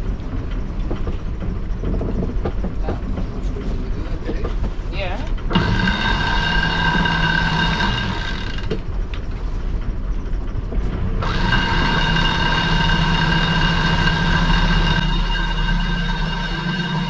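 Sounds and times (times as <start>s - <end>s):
low engine hum: 0.0s - 17.0s
electric winch whining: 5.4s - 9.3s, 11.1s - 17.0s.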